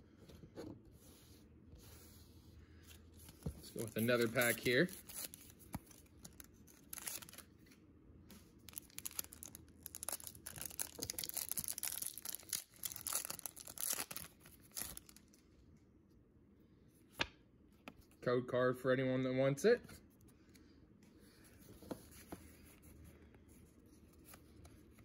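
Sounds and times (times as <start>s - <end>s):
foil wrapper tearing and crinkling: 3.9s - 7.5s, 8.6s - 15.3s.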